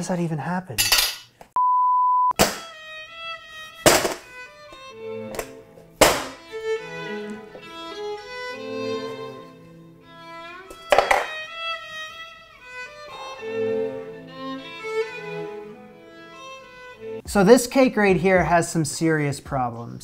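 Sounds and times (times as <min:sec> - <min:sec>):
violin and strings music: 0:02.6 - 0:19.9
metal pan knocking on wood: 0:10.9 - 0:11.3.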